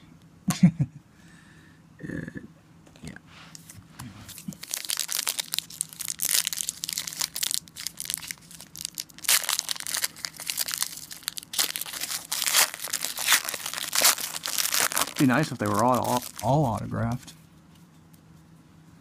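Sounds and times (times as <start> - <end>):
foil wrapper crinkling and tearing: 4.3 - 17.2.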